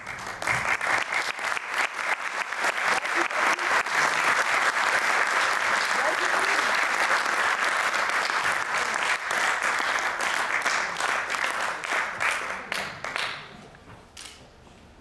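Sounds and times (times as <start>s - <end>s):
audience applauding: 0.0s - 13.5s.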